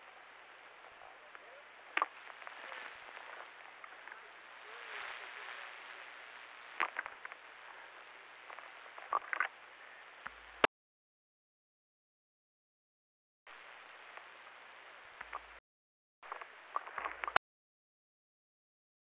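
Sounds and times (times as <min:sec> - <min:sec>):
faint radio hiss: 0:00.0 - 0:10.7, 0:13.5 - 0:15.6, 0:16.2 - 0:17.4.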